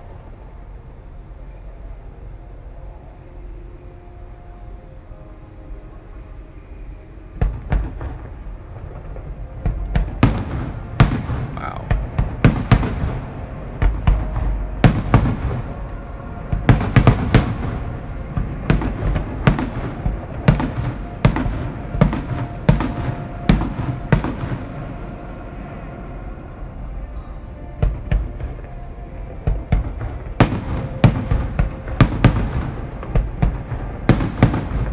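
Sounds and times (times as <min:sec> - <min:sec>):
fireworks bursting: 0:07.4 - 0:25.8, 0:29.4 - 0:34.9.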